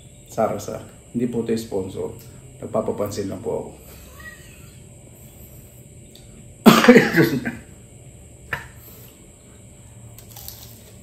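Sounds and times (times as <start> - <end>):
man coughing: 6.6 - 7.7
crunch of biting crispy food: 10.1 - 11.0.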